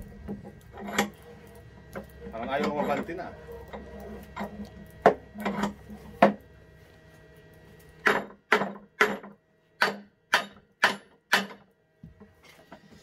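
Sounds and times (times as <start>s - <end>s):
hammer striking metal vise: 8.0s - 11.6s.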